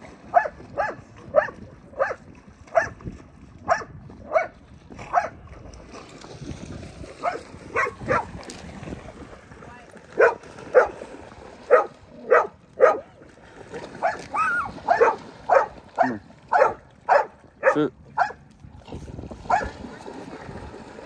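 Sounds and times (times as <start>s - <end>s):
dog barking: 0.3s - 3.0s, 3.7s - 4.5s, 5.1s - 5.4s, 7.2s - 8.3s, 10.2s - 10.9s, 11.7s - 13.1s, 14.0s - 14.3s, 14.9s - 18.4s, 19.5s - 19.7s.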